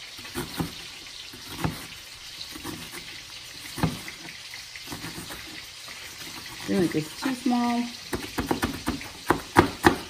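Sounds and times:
knife chopping on cutting board: 0.2 - 5.6, 8.1 - 10.0.

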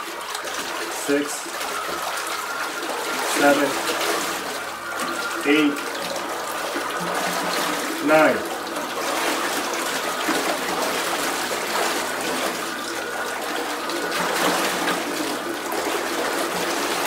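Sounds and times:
water rushing and churning: 0.0 - 17.0.

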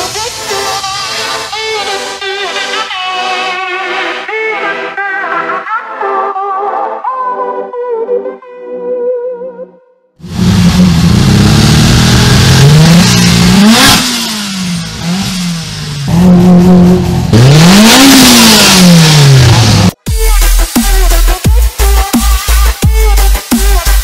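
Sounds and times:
car engine revving: 10.2 - 21.0.

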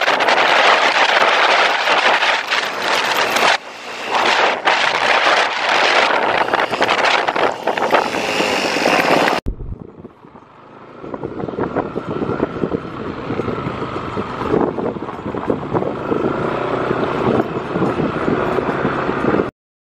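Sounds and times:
vehicle engine running: 0.0 - 19.4
road noise: 0.0 - 19.5
wind buffeting the microphone: 0.0 - 19.5.

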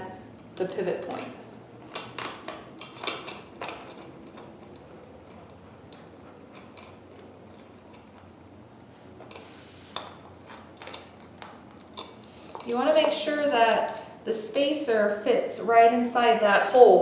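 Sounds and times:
small metal hardware clicking: 1.8 - 8.2, 10.0 - 14.2.

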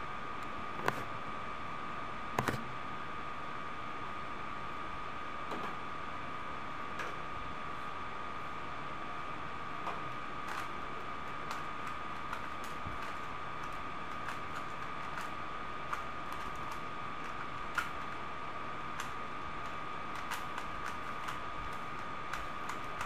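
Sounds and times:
puzzle cube plastic clicks: 11.4 - 18.2, 18.9 - 23.0.

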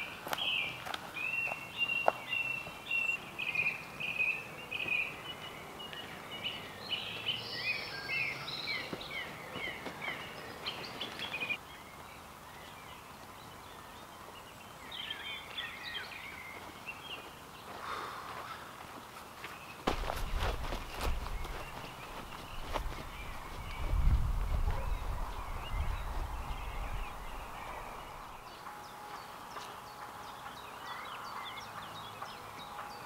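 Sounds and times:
footsteps on dirt path: 0.0 - 2.8, 8.5 - 11.6, 15.4 - 25.0
birds chirping and trilling: 0.0 - 33.0.

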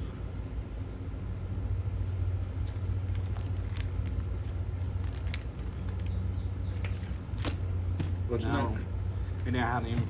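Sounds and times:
snack wrapper crinkling: 2.7 - 6.2.

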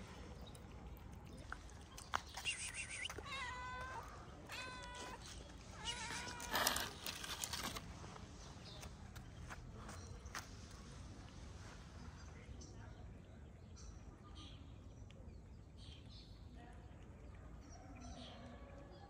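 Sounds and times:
cat meowing: 3.2 - 7.0.

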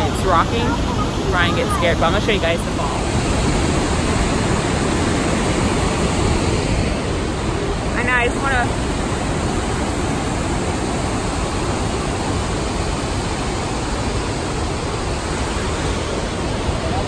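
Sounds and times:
river rapids rushing: 0.0 - 17.0.

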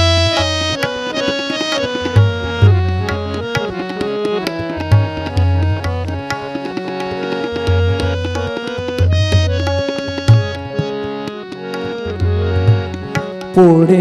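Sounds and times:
harmonium melody: 0.0 - 14.0
tabla playing a rhythm: 0.0 - 14.0.

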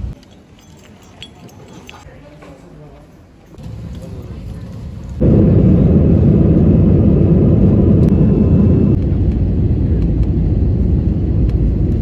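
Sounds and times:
jet engine cabin rumble: 3.6 - 12.0.

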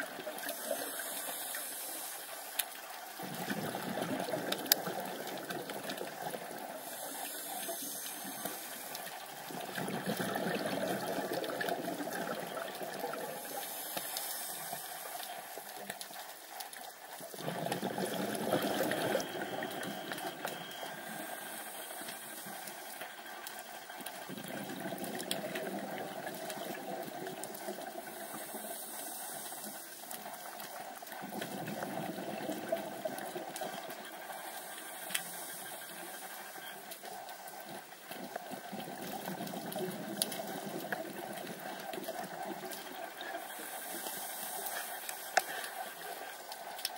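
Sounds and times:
underwater water hiss: 0.1 - 23.6, 24.2 - 38.4, 39.0 - 46.9
exhaled bubbles rushing: 3.2 - 6.9, 9.2 - 13.6, 17.2 - 21.5, 24.2 - 28.8, 31.0 - 34.5.

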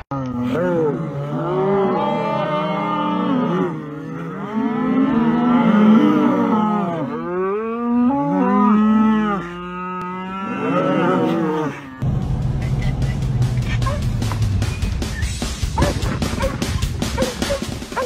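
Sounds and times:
cattle mooing: 0.0 - 12.0.

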